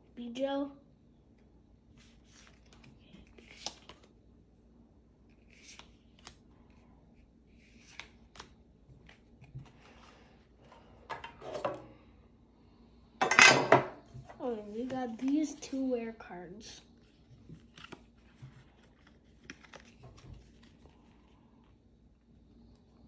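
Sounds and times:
trading cards being flipped: 0:01.9 - 0:04.1, 0:05.3 - 0:06.4, 0:07.5 - 0:10.1, 0:17.0 - 0:20.9.

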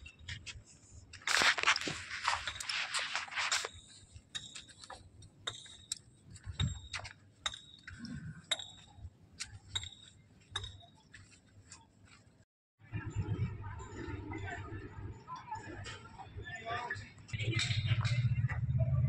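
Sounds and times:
faint low rumble: 0:12.8 - 0:15.4.

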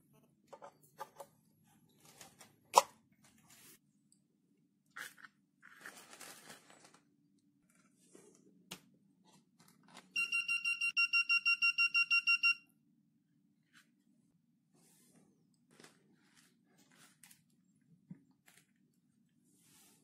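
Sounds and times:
plastic film rustling: 0:05.8 - 0:07.1.

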